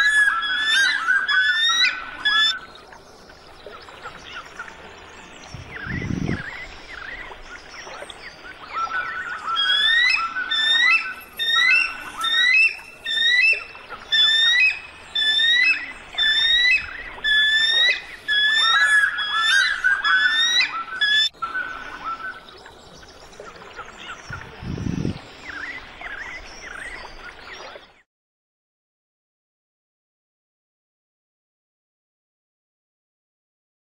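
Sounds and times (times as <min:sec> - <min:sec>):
bird chirping: 0:05.4 - 0:27.8.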